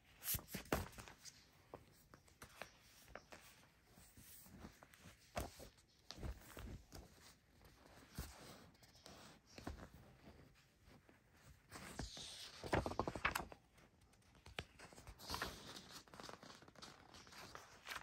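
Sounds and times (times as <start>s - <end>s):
paper rustling and sliding: 11.4s - 13.6s.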